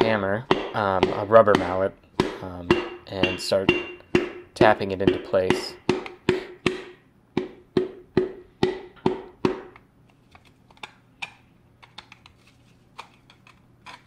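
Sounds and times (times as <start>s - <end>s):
mallet tapping metal piston: 0.0s - 9.8s.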